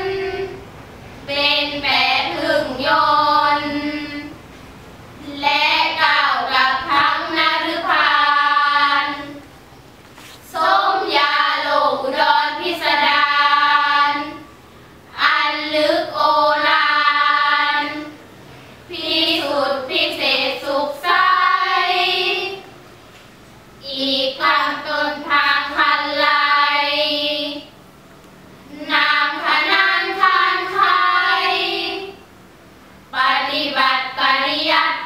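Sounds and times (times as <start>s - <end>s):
girls chanting in unison: 0.0s - 0.6s, 1.3s - 4.4s, 5.2s - 9.4s, 10.4s - 14.5s, 15.1s - 18.2s, 18.9s - 22.8s, 23.8s - 27.7s, 28.7s - 32.2s, 33.1s - 35.0s.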